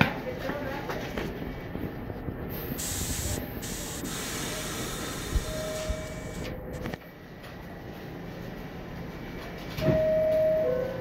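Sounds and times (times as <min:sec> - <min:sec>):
low hum of standing train: 0:00.0 - 0:11.0
compressed air hissing: 0:02.5 - 0:06.6.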